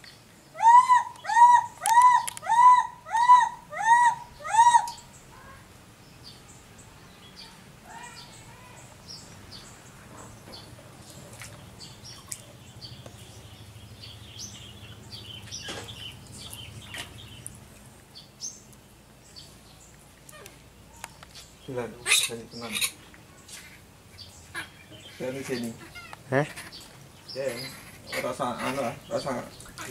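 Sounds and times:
baby monkey crying: 0.6 - 5.0, 22.0 - 23.0, 24.5 - 26.8.

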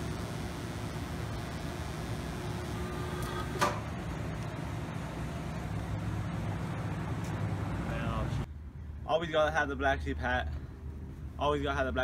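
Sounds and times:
arc welder hissing: 0.0 - 5.2.

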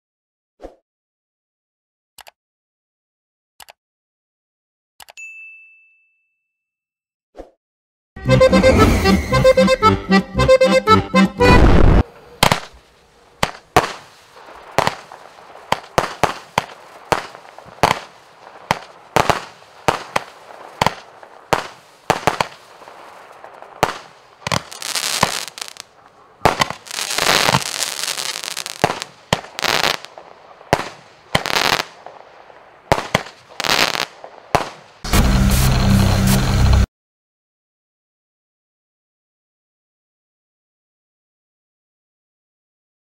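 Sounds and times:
firework cake firing sharp shots: 11.6 - 12.8, 13.4 - 32.3, 32.9 - 35.1.

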